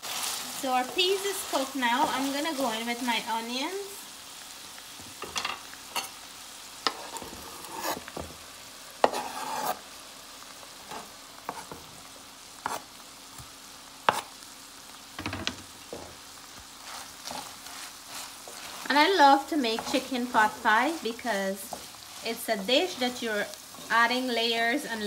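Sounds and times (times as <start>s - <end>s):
food sizzling in a pan: 0.0s - 25.0s
onion scraped from cutting board: 6.9s - 8.1s, 9.0s - 9.8s, 12.6s - 12.8s
utensil knocking and scraping pan: 9.0s - 9.8s.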